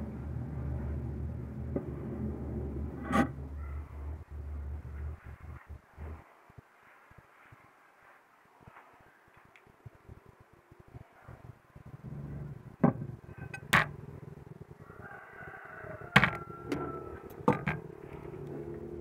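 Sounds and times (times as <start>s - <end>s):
steady low hum: 0.0s - 8.8s, 9.4s - 19.0s
metal blade knocking on wood: 12.8s - 13.9s.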